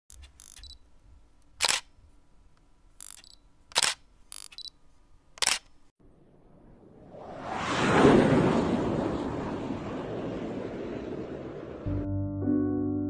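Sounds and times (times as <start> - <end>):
camera shutter clicks: 0.1 - 0.8, 1.6 - 1.9, 3.0 - 4.7, 5.4 - 5.8.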